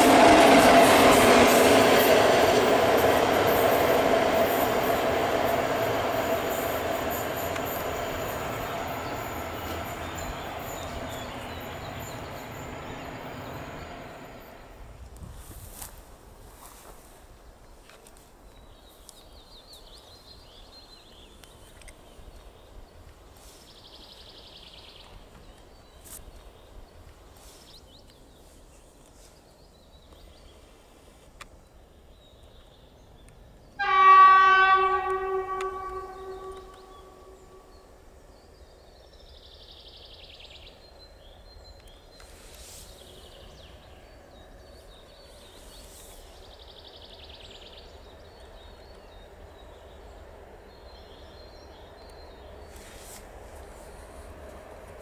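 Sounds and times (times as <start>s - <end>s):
faint approaching train: 0.0s - 55.0s
locomotive horn blast: 33.8s - 37.8s.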